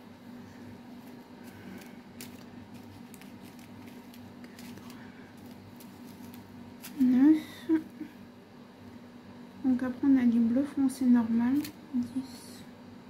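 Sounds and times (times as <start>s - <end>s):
steady low hum: 0.0s - 13.0s
plastic bags rustling and clicking: 1.0s - 7.2s.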